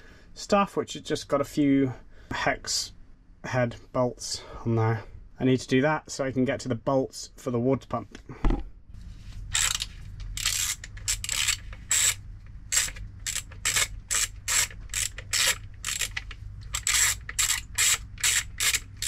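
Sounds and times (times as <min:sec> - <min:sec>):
low steady hum: 0:00.0 - 0:19.0
socket ratchet clicking: 0:09.5 - 0:19.0.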